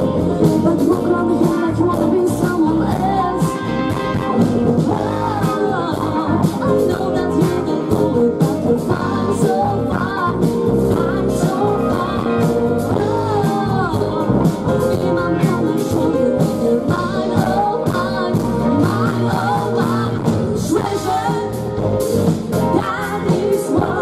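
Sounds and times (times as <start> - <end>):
drum kit: 0.0 - 24.0
electric guitars: 0.0 - 24.0
keyboard: 0.0 - 24.0
woman singing: 0.0 - 24.0.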